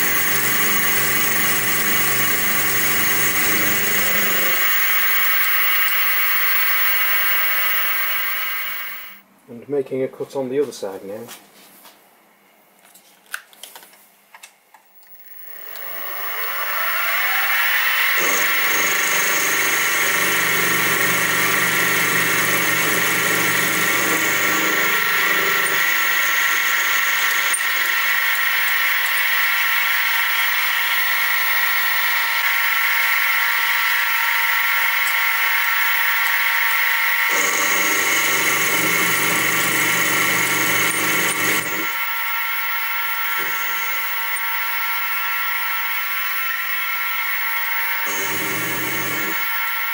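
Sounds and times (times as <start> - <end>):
end mill cutting metal: 0.0 - 9.2, 15.2 - 49.9
mill spindle motor whining: 0.0 - 9.2, 15.0 - 49.9.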